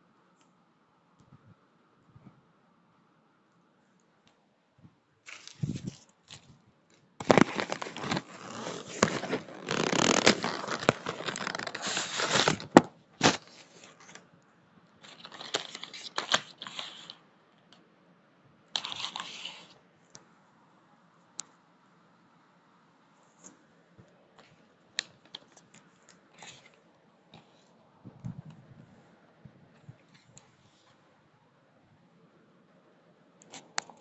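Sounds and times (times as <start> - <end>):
paper tearing and crinkling: 5.3 - 6.5, 7.2 - 14.2, 15.1 - 17.2.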